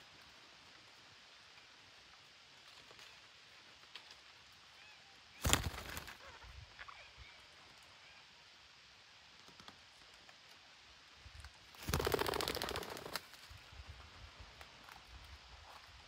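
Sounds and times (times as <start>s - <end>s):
bird wing beats: 5.4s - 6.4s, 11.7s - 13.6s.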